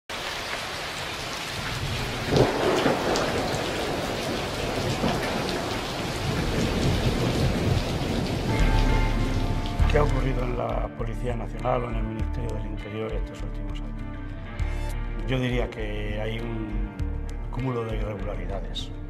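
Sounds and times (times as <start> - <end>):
steady rain: 0.1 - 10.7
rumbling thunder: 1.6 - 9.4.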